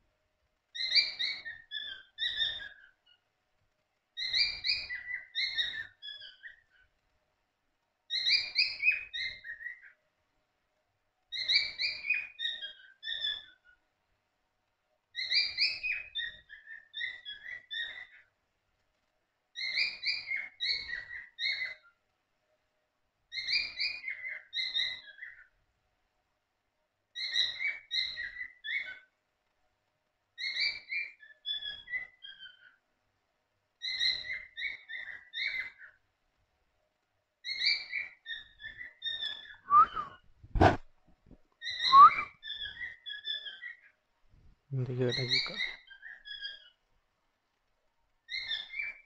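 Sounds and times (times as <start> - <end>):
cockatiels chirping: 0.8 - 3.2, 4.2 - 6.8, 8.1 - 10.0, 11.3 - 13.8, 15.2 - 18.3, 19.6 - 21.9, 23.3 - 25.5, 27.2 - 29.1, 30.4 - 32.8, 33.8 - 36.0, 37.4 - 40.0, 41.6 - 43.9, 45.0 - 46.8, 48.3 - 49.0.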